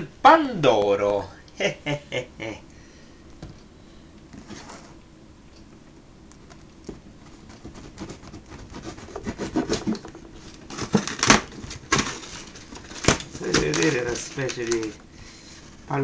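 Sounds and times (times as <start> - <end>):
fingers scraping cardboard box: 7.2 - 11.3.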